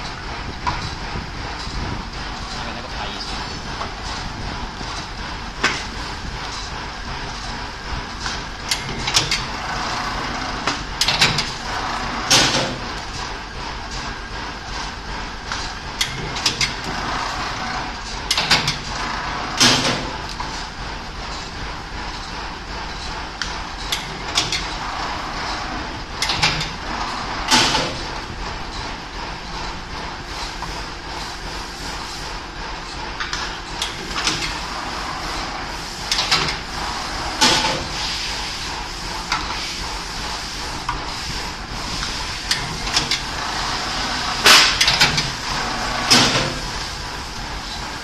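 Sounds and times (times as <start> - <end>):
binding machine humming: 0.0 - 48.0
mechanism sharp clicks and clacks: 0.0 - 48.0
mechanism clicks and knocks: 8.3 - 9.5, 10.6 - 11.6, 18.3 - 18.9, 25.4 - 26.8, 44.4 - 45.4.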